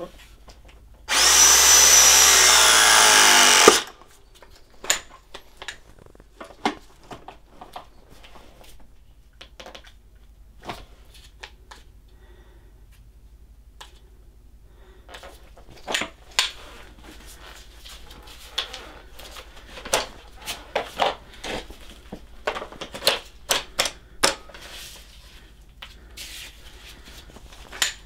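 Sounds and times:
crimping tool motor: 0:01.1 - 0:03.9.

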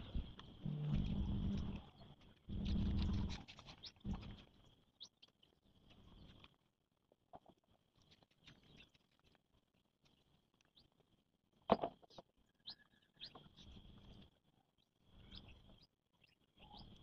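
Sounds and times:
faint chirps: 0:00.0 - 0:06.7, 0:12.0 - 0:17.0.

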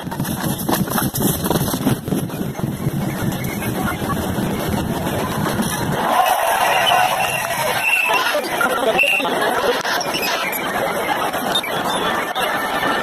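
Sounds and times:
sped-up crowd noise: 0:00.0 - 0:13.0
voice-like chatter: 0:02.8 - 0:13.0.

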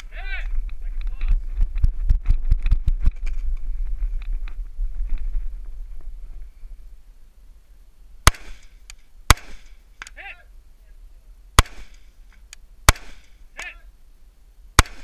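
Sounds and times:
rifle shots: 0:08.2 - 0:09.8, 0:11.6 - 0:12.1, 0:12.9 - 0:13.7, 0:14.8 - 0:15.0.

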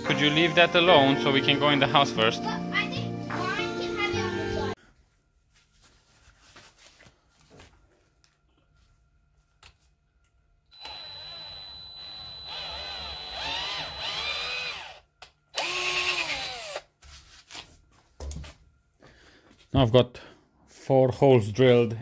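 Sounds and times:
electric drill boring into steel: 0:10.7 - 0:16.9.

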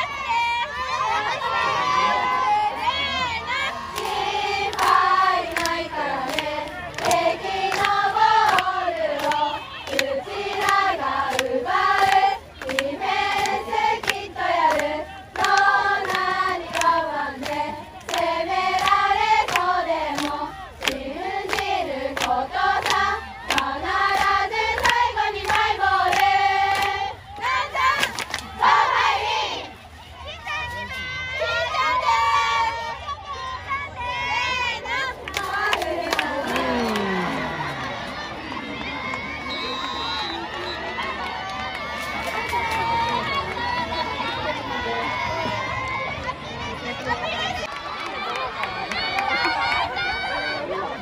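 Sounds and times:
women chanting a cheer: 0:00.0 - 0:39.7
hand clapping: 0:04.0 - 0:27.0.

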